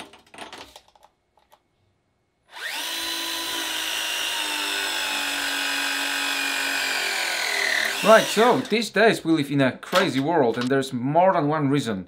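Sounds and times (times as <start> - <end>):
pipe press tool motor: 2.5 - 8.8.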